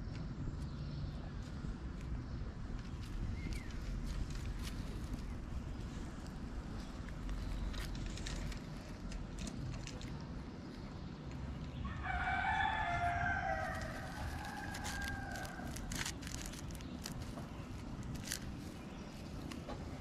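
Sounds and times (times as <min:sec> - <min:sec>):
faint street background noise: 0:00.0 - 0:20.0
rooster crowing: 0:11.8 - 0:15.8.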